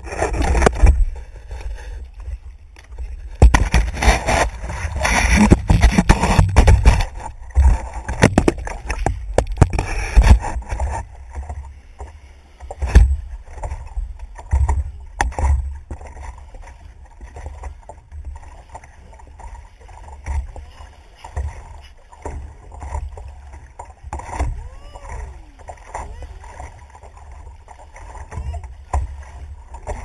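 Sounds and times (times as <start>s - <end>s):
water sloshing against board: 0.0s - 30.0s.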